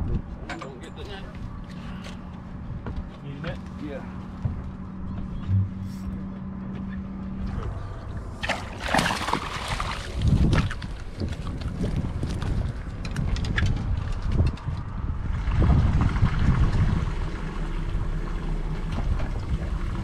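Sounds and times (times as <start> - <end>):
steady low hum: 0.0 - 20.0
water splashing around a boat: 7.4 - 20.0.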